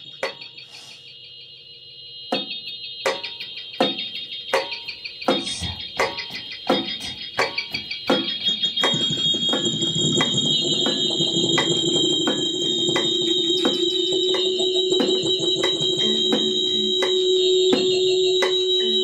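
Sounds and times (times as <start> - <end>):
drum and cymbal strikes: 0.0 - 1.1, 2.3 - 19.0
shrill electronic feedback tones: 0.0 - 19.0
low sustained tone: 9.9 - 19.0.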